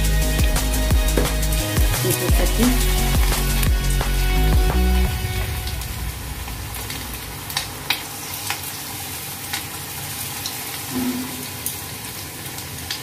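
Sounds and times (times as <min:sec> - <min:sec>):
chicken deep-frying in oil: 0:05.8 - 0:13.0.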